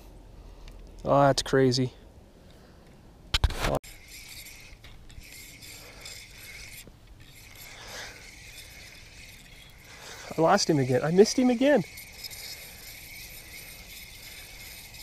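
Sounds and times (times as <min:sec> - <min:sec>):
fishing reel whirring: 0:03.8 - 0:15.0
person talking: 0:10.3 - 0:11.9.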